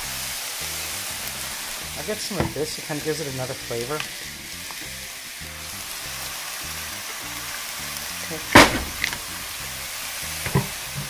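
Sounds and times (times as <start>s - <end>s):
background music: 0.0s - 11.0s
vegetables sizzling in oil: 0.0s - 11.0s
wooden spoon knocking pan: 2.2s - 2.8s.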